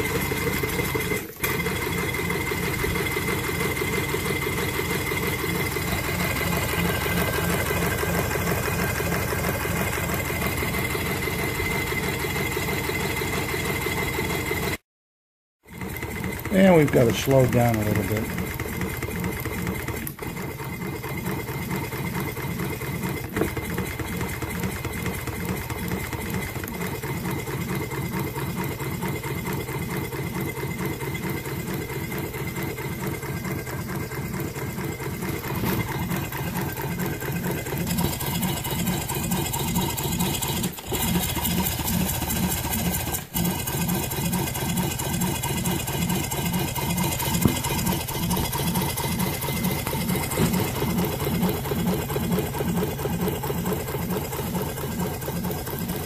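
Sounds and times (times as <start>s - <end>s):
steam engine rhythmic clatter: 15.7s - 56.0s.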